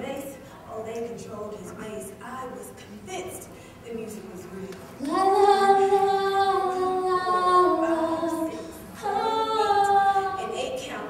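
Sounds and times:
woman singing a cappella: 5.0s - 11.0s.

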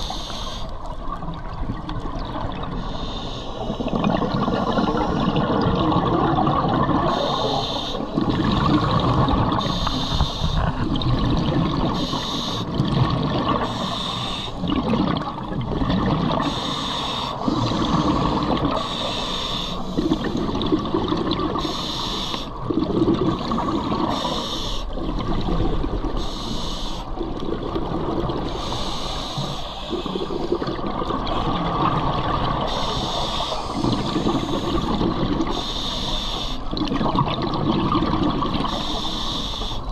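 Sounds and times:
regulator hiss on inhale: 0.0s - 0.8s, 2.7s - 5.3s, 7.0s - 8.2s, 9.6s - 10.8s, 11.9s - 12.7s, 13.6s - 14.6s, 16.4s - 20.4s, 21.6s - 22.6s, 23.5s - 25.0s, 26.2s - 27.2s, 28.5s - 30.6s, 32.7s - 36.7s, 38.6s - 39.9s
gurgling exhaled bubbles: 0.8s - 35.7s, 36.6s - 39.9s.

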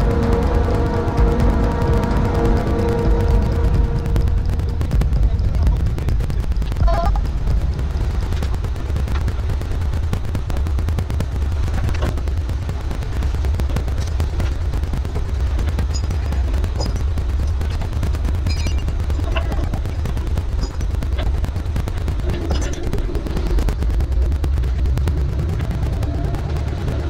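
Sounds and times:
boat engine rumbling: 0.0s - 27.0s
rapid crackle: 0.0s - 27.0s
wind buffeting microphone: 0.0s - 27.0s.

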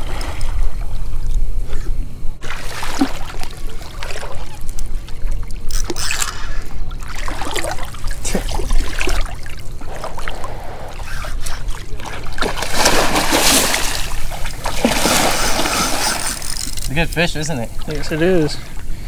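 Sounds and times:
fish thrashing in water: 2.4s - 6.0s, 6.9s - 16.9s.

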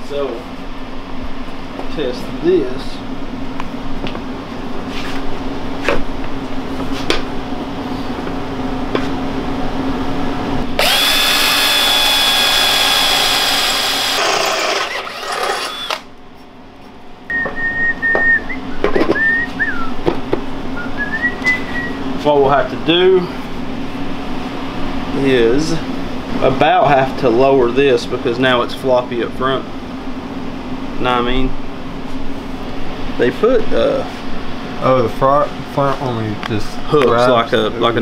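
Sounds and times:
cordless drill boring into metal: 10.8s - 16.1s.

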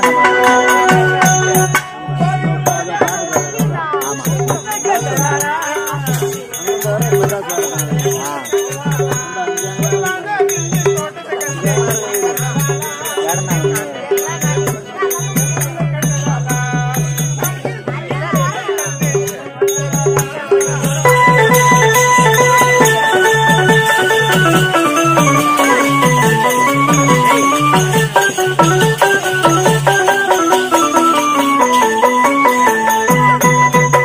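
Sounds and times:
wavering melody: 0.0s - 10.2s, 19.2s - 34.0s
hand drum beating: 0.0s - 34.0s
harmonium: 0.0s - 34.0s
jingling rattle: 19.7s - 33.4s.

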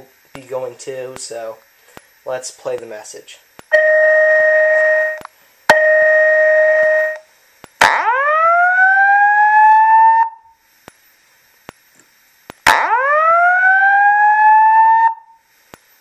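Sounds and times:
two-note alarm tone blasts: 3.7s - 7.2s, 7.8s - 10.6s, 12.7s - 15.4s
rising whoop siren: 7.8s - 10.5s, 12.7s - 15.4s.

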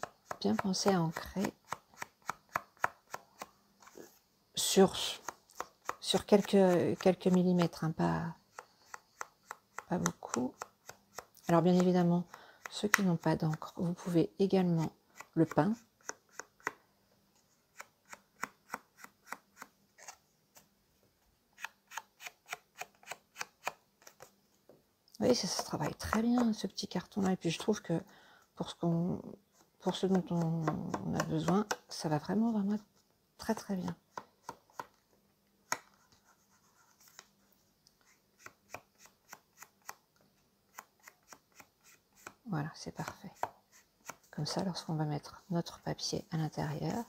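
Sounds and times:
ink dauber tapping cardboard: 0.0s - 3.5s, 25.4s - 26.6s.

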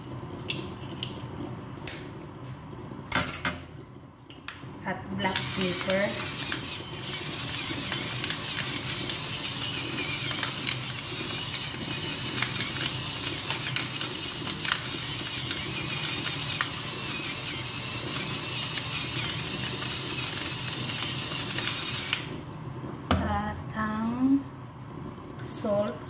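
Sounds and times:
pepper mill grinding: 5.3s - 22.2s.

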